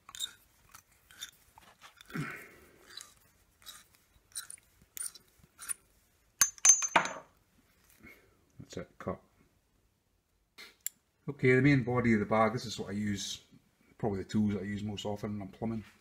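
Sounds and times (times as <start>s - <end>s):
pipe cutter scraping copper pipe: 0.0s - 2.1s
metallic clatter and ring: 6.4s - 7.2s.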